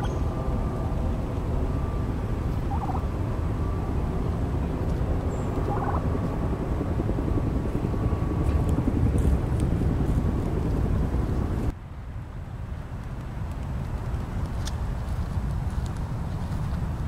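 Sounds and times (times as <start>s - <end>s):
wind buffeting microphone: 0.0s - 11.7s
short warbling calls: 2.6s - 3.0s.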